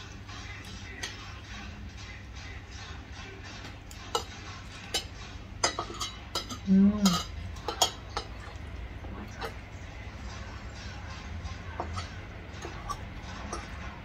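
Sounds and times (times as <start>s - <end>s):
cutlery clinking on plates: 0.6s - 1.4s, 3.6s - 9.6s, 11.7s - 14.0s.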